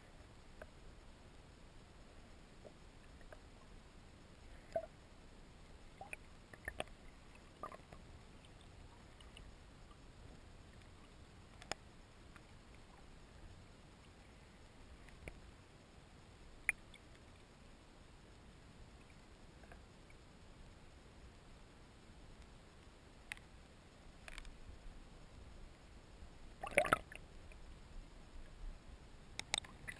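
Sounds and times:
muffled underwater hiss: 0:00.0 - 0:29.9
water clicks and pops: 0:06.0 - 0:07.0, 0:11.5 - 0:12.5, 0:26.6 - 0:27.2, 0:29.4 - 0:29.9.

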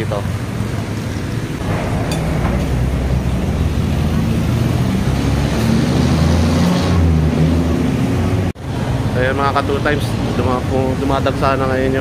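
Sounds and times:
vehicle engine running: 0:00.0 - 0:06.6
road traffic rumble: 0:00.0 - 0:12.0.

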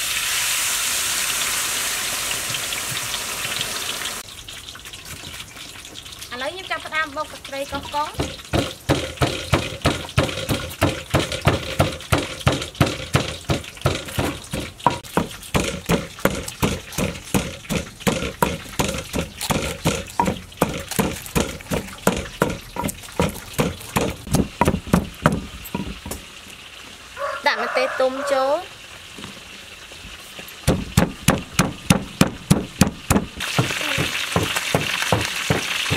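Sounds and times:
wooden pestle pounding in mortar: 0:07.7 - 0:26.2, 0:30.6 - 0:35.9.

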